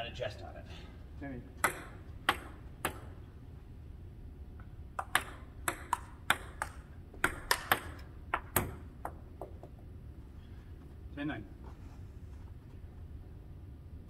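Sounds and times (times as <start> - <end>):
table tennis ball clicking: 5.0 - 9.7.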